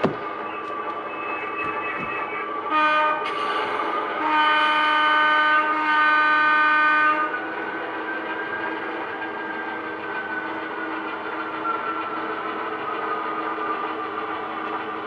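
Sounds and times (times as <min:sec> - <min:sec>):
locomotive engine hum: 0:00.0 - 0:15.0
model locomotive horn blasts: 0:02.7 - 0:03.3, 0:04.1 - 0:07.4.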